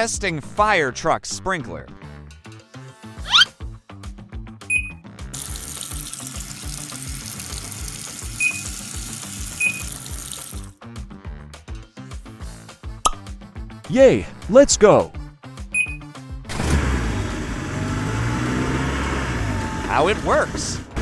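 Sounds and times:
background music with steady beat: 2.0s - 16.5s
short high beeps: 4.7s - 5.0s, 8.4s - 8.7s, 9.6s - 9.9s, 15.8s - 16.1s
water spray hissing: 5.4s - 10.7s.

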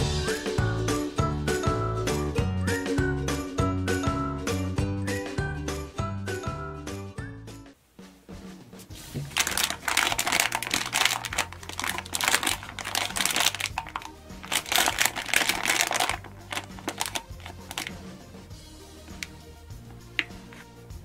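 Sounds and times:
background music: 0.0s - 21.0s
plastic packet crinkling: 9.2s - 18.0s.

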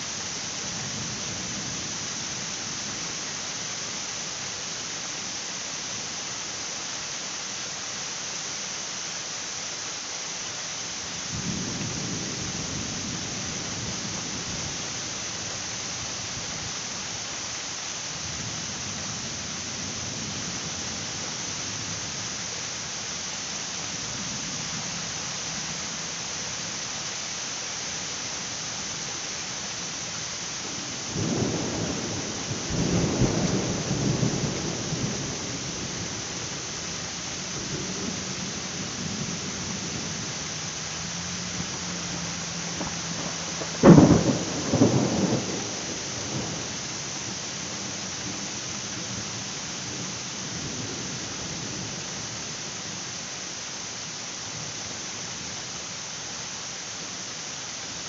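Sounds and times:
heavy rain hissing: 0.0s - 58.0s
thunder rumbling: 30.6s - 52.0s.

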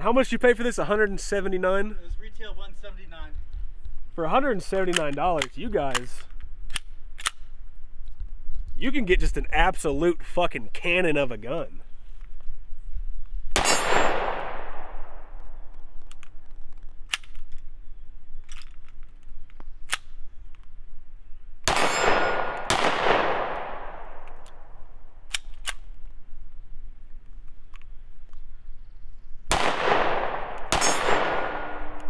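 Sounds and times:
loud pistol shots with echo: 13.6s - 15.3s, 21.6s - 24.2s, 29.5s - 32.0s.

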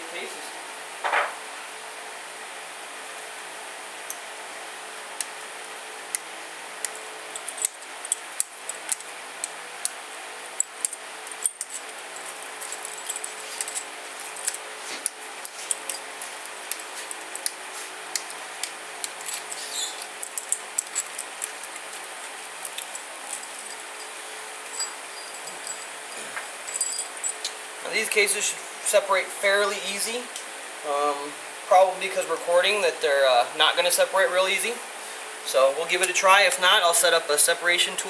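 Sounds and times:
faint steady hum: 0.0s - 38.0s
hand tool metallic clicks: 10.6s - 23.8s.

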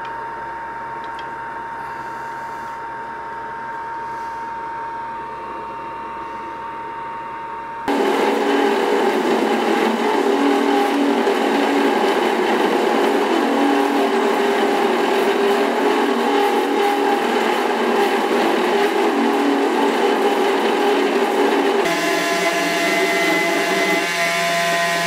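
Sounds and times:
belt grinder grinding metal: 7.9s - 25.0s.

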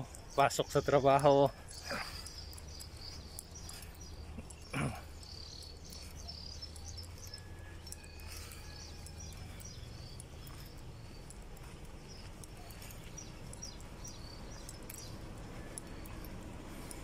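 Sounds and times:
birds chirping: 0.0s - 17.0s
insects chirping: 0.0s - 17.0s
low steady rumble: 1.5s - 17.0s.

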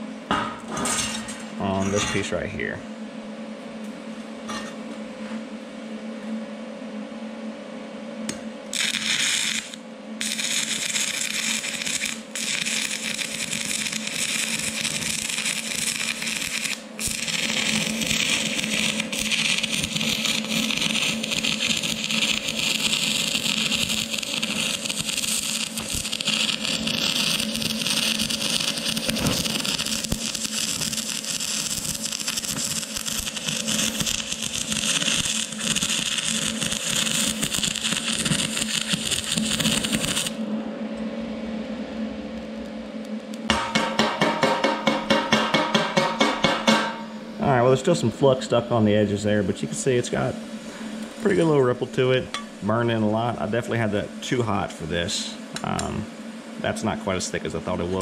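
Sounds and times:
welding arc crackling: 8.7s - 40.4s.

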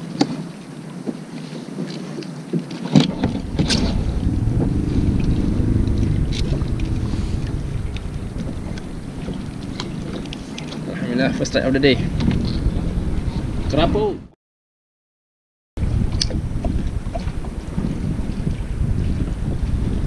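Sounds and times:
wind buffeting microphone: 3.0s - 14.3s, 15.8s - 20.0s.

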